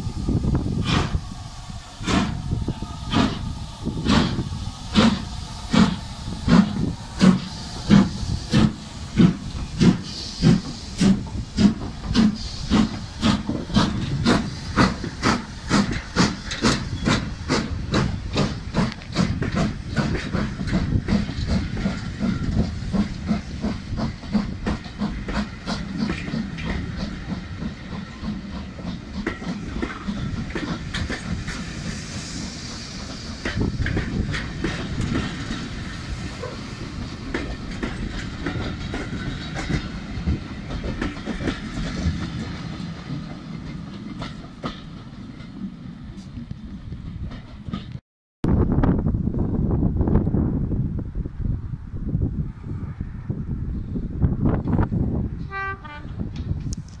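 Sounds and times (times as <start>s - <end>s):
steam locomotive chuffing: 0.0s - 48.0s
wheels clacking over rail joints: 33.0s - 48.0s.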